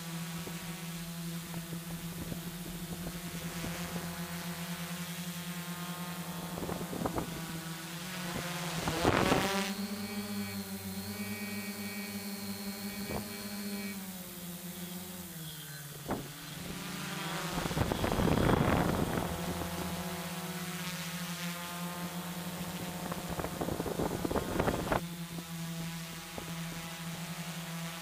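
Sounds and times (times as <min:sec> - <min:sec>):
drone motors buzzing: 0:00.0 - 0:28.0
wind buffeting microphone: 0:06.4 - 0:07.6, 0:16.0 - 0:20.6, 0:22.6 - 0:25.0.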